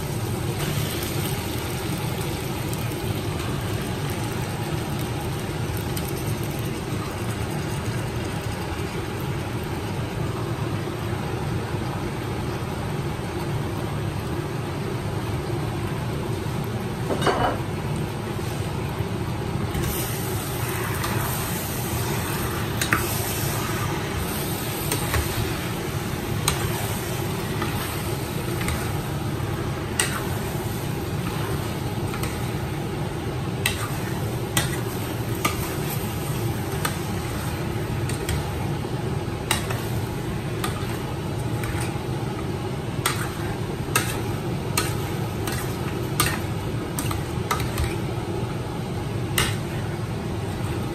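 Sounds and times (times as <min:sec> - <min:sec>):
low hum and hiss: 0:00.0 - 0:50.9.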